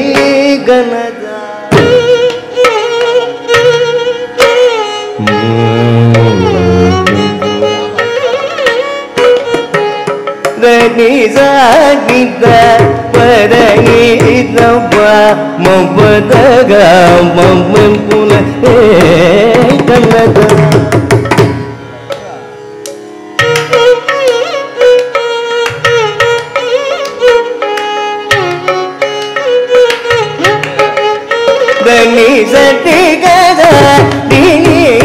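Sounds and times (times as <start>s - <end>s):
violin melody: 0.0s - 20.7s, 21.3s - 35.0s
person singing: 5.1s - 8.1s, 10.6s - 20.8s, 31.6s - 35.0s
hand drum strokes: 5.2s - 8.0s.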